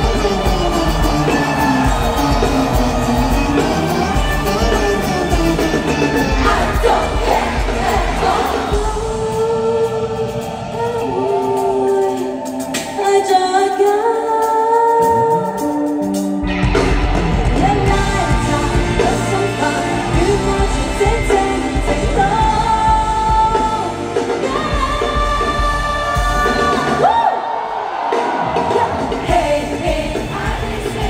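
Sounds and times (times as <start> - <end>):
pop backing track with heavy bass: 0.0 - 10.1
women singing: 0.0 - 15.5, 17.5 - 27.4, 28.6 - 31.0.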